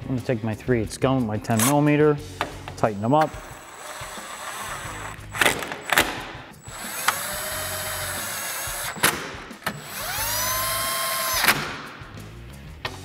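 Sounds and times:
impact gun motor whirring: 0:03.2 - 0:11.6.

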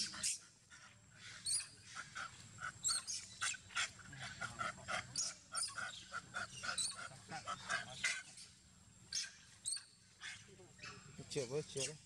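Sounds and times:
monkeys giving sharp calls: 0:00.0 - 0:08.5.

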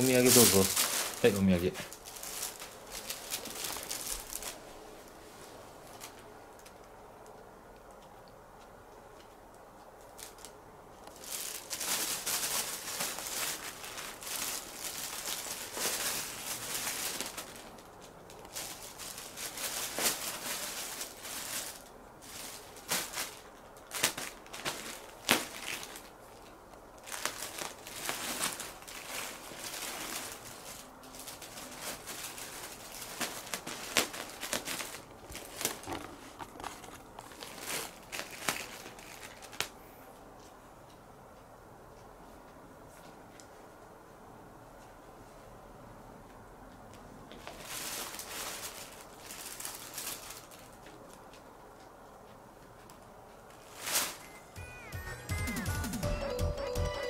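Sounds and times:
plastic bag crinkling: 0:00.0 - 0:05.2, 0:10.0 - 0:39.8, 0:47.3 - 0:51.4, 0:53.5 - 0:54.6.

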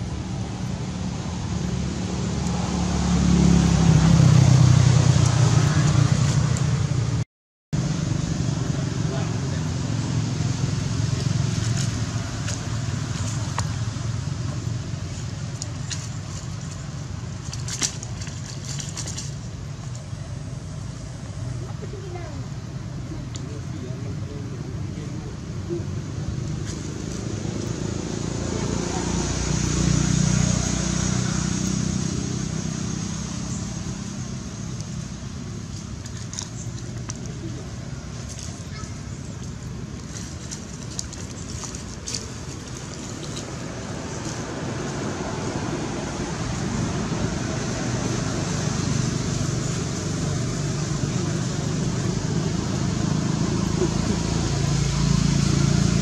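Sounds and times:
vehicle engine humming: 0:00.0 - 0:07.2, 0:07.8 - 0:56.0
steady low rumble: 0:03.6 - 0:56.0
dry leaves crackling underfoot: 0:35.6 - 0:46.1.

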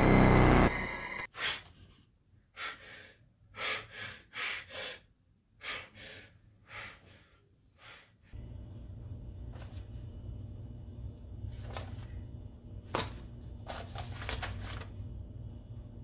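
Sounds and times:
man gasping breaths: 0:02.5 - 0:08.3
low room tone hum: 0:08.3 - 0:16.0.

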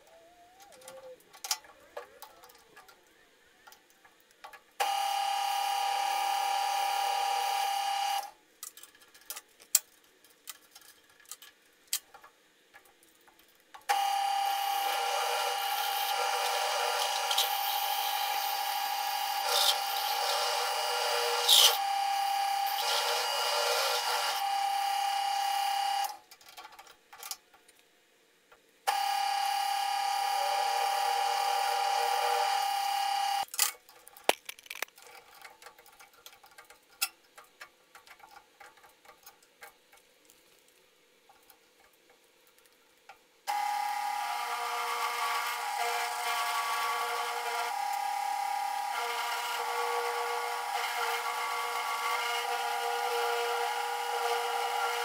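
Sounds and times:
drill press motor whining: 0:13.9 - 0:26.1, 0:43.5 - 0:55.0
drill bit cutting steel: 0:14.0 - 0:25.2, 0:43.5 - 0:55.0.

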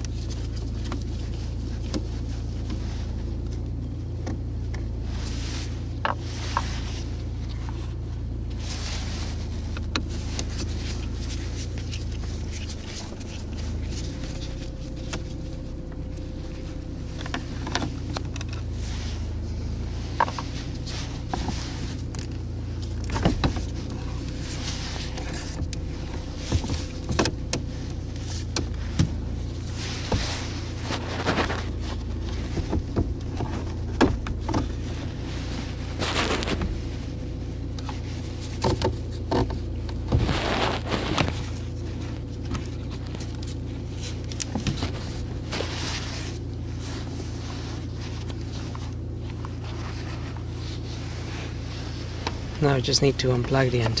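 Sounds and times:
steady low hum: 0:00.0 - 0:54.0
stereo unit clicking and scraping: 0:08.6 - 0:47.2.

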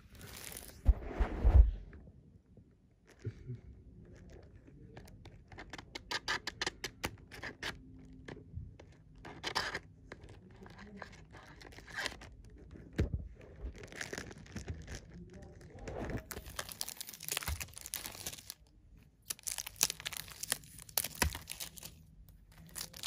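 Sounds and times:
packaging rustling: 0:00.0 - 0:00.9, 0:09.6 - 0:23.0
plastic packaging clicks and scratches: 0:00.0 - 0:00.9, 0:03.0 - 0:23.0.

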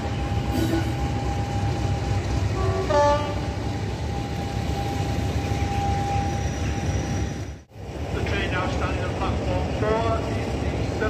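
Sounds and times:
diesel locomotive engine rumble: 0:00.0 - 0:11.0
two-tone horn blast: 0:02.6 - 0:03.6.

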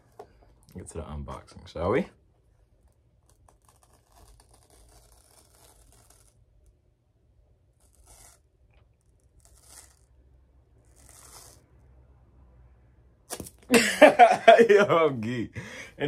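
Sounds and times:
seal strip tearing: 0:03.3 - 0:06.4, 0:13.3 - 0:13.7.

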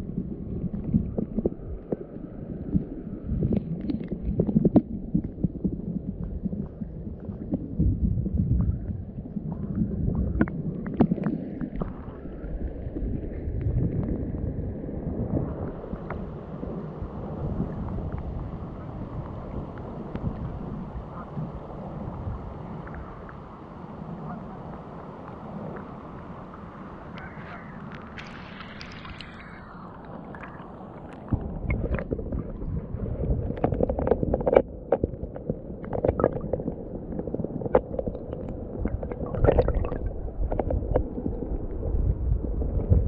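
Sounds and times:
muffled underwater rumble: 0:00.0 - 0:43.0
underwater clicks and knocks: 0:03.5 - 0:08.8, 0:09.5 - 0:12.0, 0:31.2 - 0:43.0
river water over rocks: 0:15.4 - 0:43.0.

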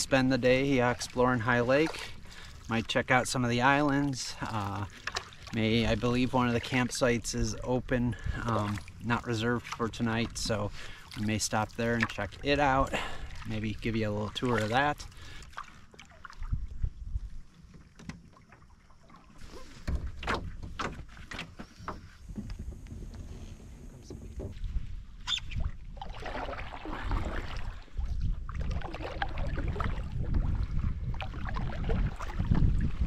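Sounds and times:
canoe paddle splashing in water: 0:00.0 - 0:33.0
paddle knocks and drips: 0:00.0 - 0:33.0
wind rumble on microphone: 0:16.4 - 0:17.6, 0:19.5 - 0:33.0.

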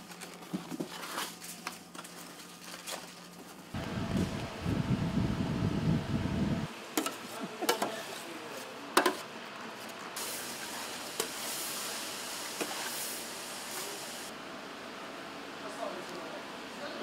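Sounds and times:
food sizzling in a hot pan: 0:10.2 - 0:14.3.

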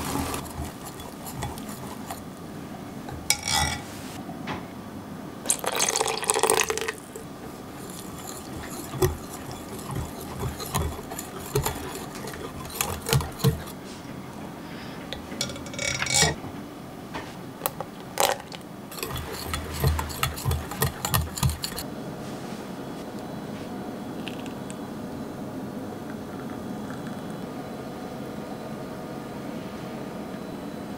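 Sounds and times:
whisk clinking against glass: 0:00.0 - 0:02.3, 0:03.1 - 0:03.9, 0:05.5 - 0:13.8, 0:18.9 - 0:21.8
milk pouring into jug: 0:00.0 - 0:02.4, 0:05.5 - 0:13.8, 0:18.9 - 0:21.8.

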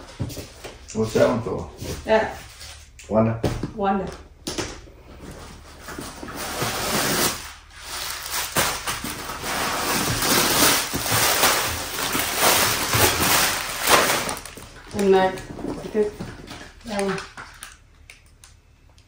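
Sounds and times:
packing paper rustling and crinkling: 0:05.6 - 0:17.8.

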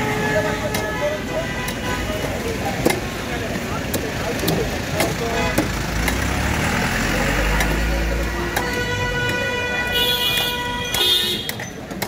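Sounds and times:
vehicle engine rumble: 0:00.0 - 0:12.0
steady vehicle horn or siren: 0:08.5 - 0:11.5.

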